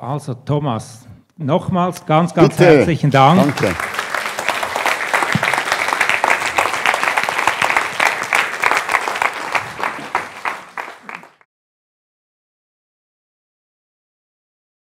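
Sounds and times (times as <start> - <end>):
audience applauding: 2.4 - 11.5.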